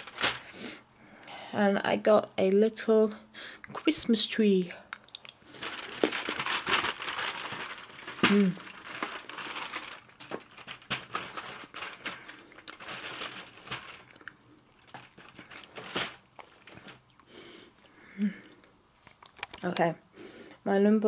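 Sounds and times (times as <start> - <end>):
foil and card crinkling: 0.0 - 0.6, 5.4 - 17.1
chewing: 4.9 - 5.5, 12.5 - 12.8, 14.0 - 19.4.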